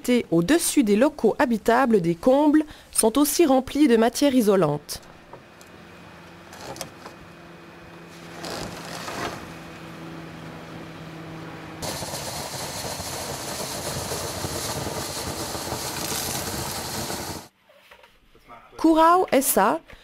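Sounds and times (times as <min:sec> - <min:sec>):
insulation blowing machine humming: 0:04.4 - 0:17.5
air and paper flakes hissing: 0:08.1 - 0:09.4, 0:11.8 - 0:17.5.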